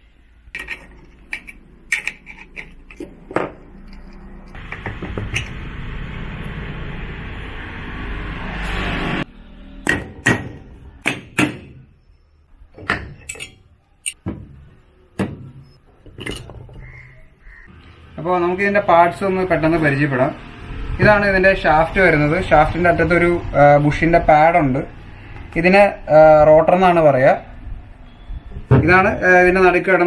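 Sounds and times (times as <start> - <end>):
metal parts clinking: 0.6 - 4.6, 13.2 - 14.2, 15.9 - 16.8
tools knocking on metal parts: 12.8 - 14.6, 15.2 - 16.9.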